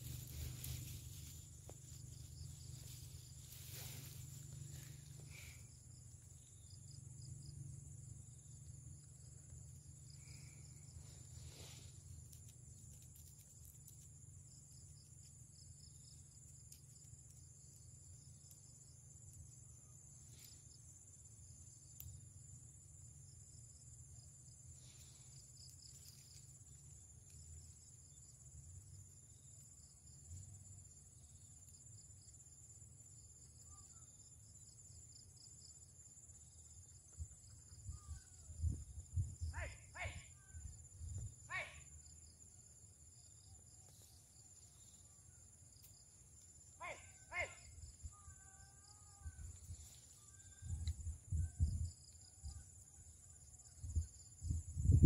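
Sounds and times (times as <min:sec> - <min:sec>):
crickets trilling and chirping: 0:00.0 - 0:55.0.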